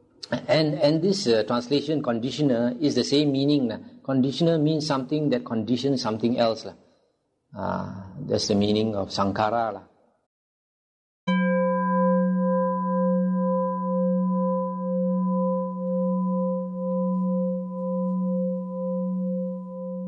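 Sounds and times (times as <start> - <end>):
singing bowl ringing: 11.3 - 20.0.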